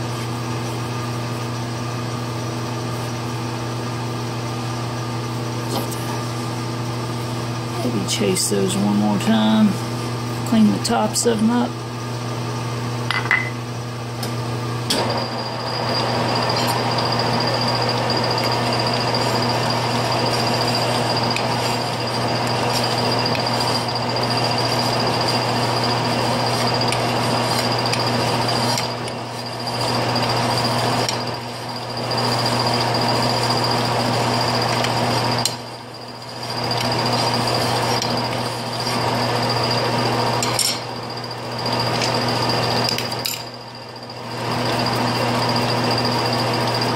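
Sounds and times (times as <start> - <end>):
lathe humming: 14.9 - 46.9.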